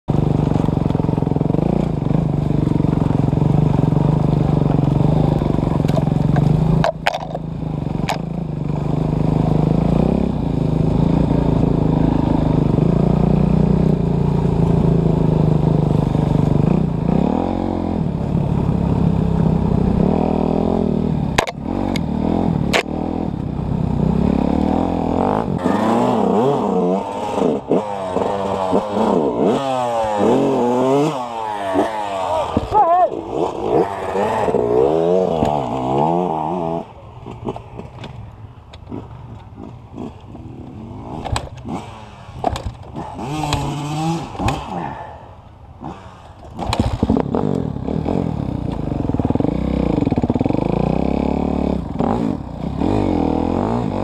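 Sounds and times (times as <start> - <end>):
dirt bike engine revving: 0.1 - 38.0, 38.9 - 54.0.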